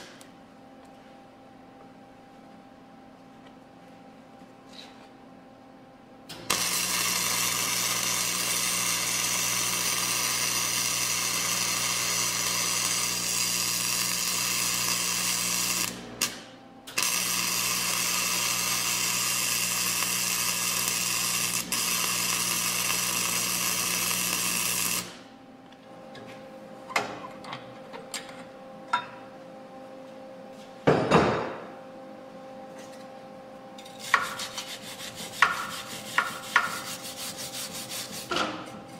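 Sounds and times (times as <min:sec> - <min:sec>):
welder crackling buzz: 0:06.3 - 0:25.3.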